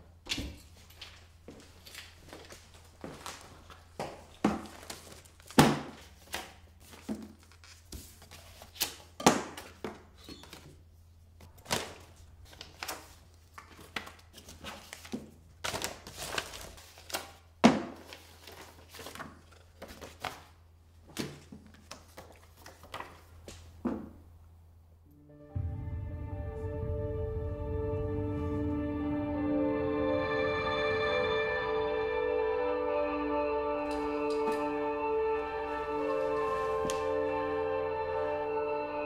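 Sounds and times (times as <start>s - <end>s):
paper rustling: 0.9s - 10.8s, 11.4s - 23.7s.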